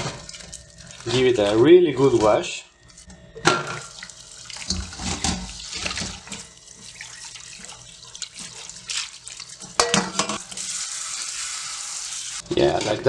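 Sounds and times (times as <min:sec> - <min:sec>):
water splashing into metal sink: 0:03.5 - 0:10.8.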